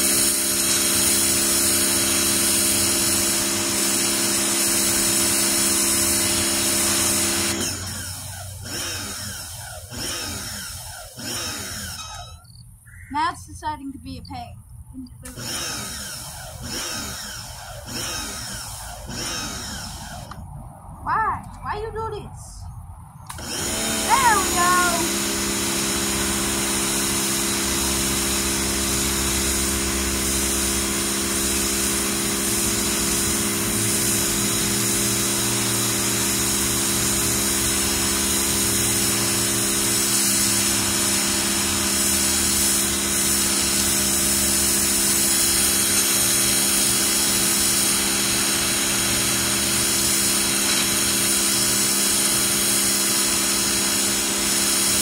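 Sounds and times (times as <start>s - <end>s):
water jet spraying on concrete: 0.0s - 12.4s, 15.2s - 20.3s, 23.3s - 55.0s
pressure washer motor humming: 0.0s - 12.6s, 15.0s - 20.4s, 23.3s - 55.0s.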